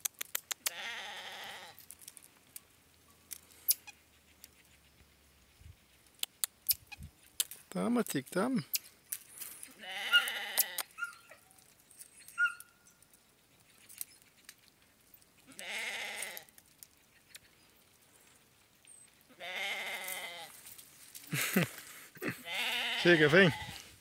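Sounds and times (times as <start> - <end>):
livestock bleating: 0.7 - 1.8, 9.7 - 10.9, 15.5 - 16.5, 19.3 - 20.6, 22.2 - 23.9.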